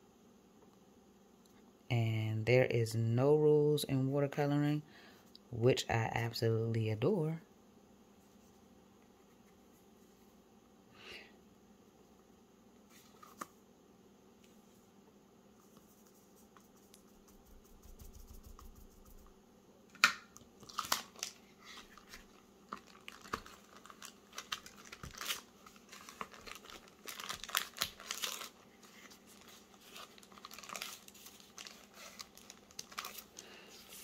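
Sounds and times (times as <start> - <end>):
plastic sheet crinkling: 20.6 - 34.0.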